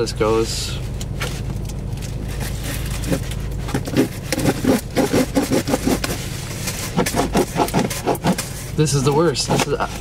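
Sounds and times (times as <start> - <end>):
low hum inside car: 0.0 - 10.0
ice scraper scraping cardboard: 3.8 - 8.6, 9.4 - 10.0.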